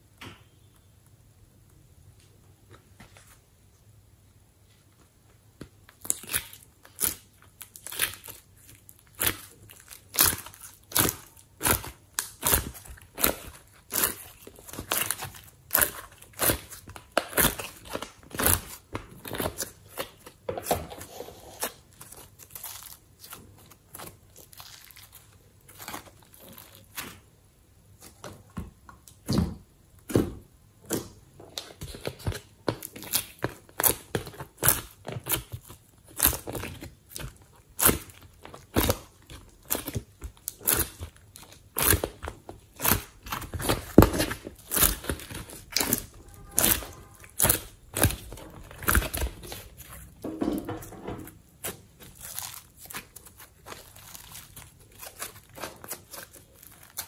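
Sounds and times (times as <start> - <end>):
sticky slime clicks and crackles: 5.8 - 20.8, 30.9 - 50.1.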